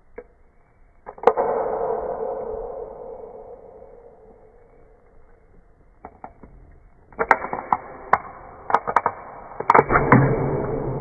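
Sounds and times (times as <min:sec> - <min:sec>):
can ring-pull clicking and cracking: 0:07.1 - 0:10.4.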